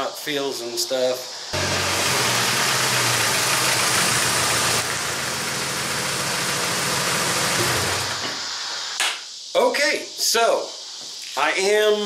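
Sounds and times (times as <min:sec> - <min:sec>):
car engine running: 0:01.6 - 0:08.2.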